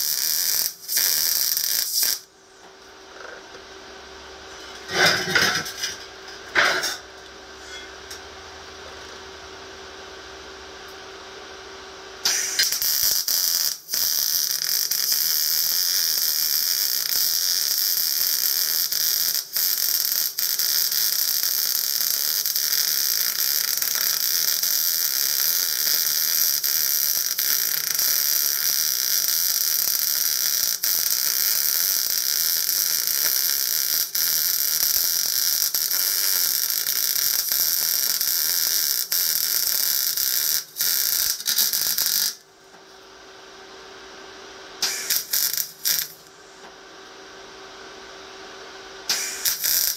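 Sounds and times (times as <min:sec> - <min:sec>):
welding arc hissing: 0:00.0 - 0:02.3, 0:04.8 - 0:07.0, 0:12.2 - 0:42.5, 0:44.8 - 0:46.6, 0:49.0 - 0:49.9.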